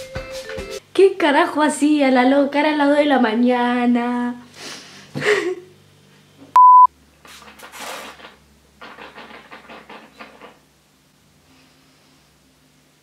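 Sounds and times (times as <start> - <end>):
loud steady beep: 6.6 - 6.9.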